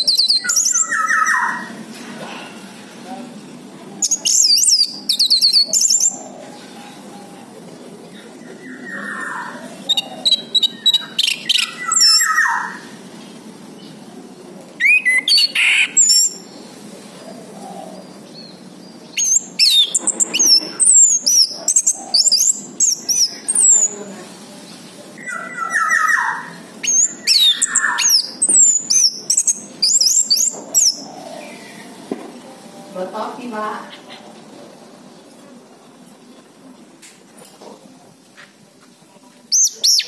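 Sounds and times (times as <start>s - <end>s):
thrush singing whistles and chirps: 8.6s - 12.8s, 19.1s - 23.8s, 25.2s - 31.0s, 39.6s - 40.0s.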